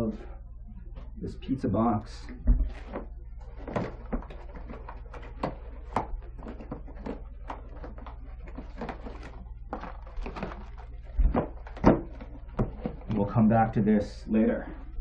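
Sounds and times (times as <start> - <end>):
low steady hum: 0.0 - 15.0
cardboard boxes knocking and rustling: 2.4 - 13.3.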